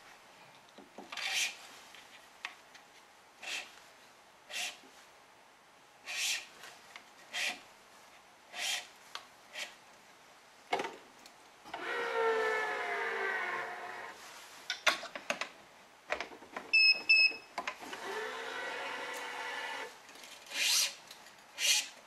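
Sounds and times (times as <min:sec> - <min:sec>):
short electronic beeps: 0:16.8 - 0:17.5.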